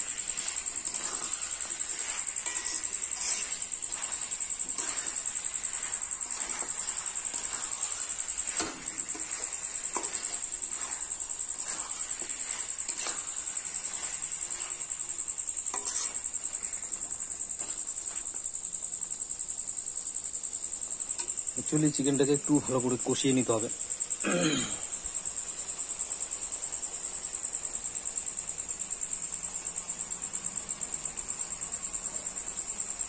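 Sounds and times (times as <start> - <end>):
metal spatula scraping a pan: 0.0 - 18.3
pulsing insect trill: 0.0 - 33.0.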